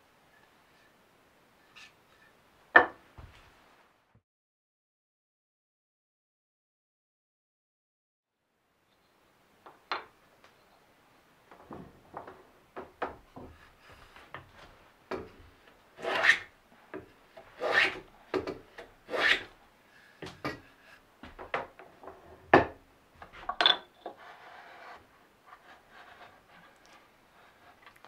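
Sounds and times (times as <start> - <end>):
hand plane shaving wood: 16.0 - 16.5, 17.4 - 18.1, 19.0 - 19.5, 24.2 - 27.8.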